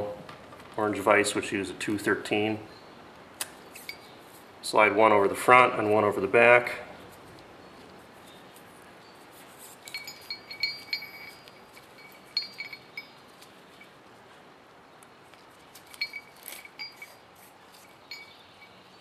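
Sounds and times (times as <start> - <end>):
light metallic clinks: 3.7 - 4.2, 7.6 - 14.3, 15.3 - 19.0.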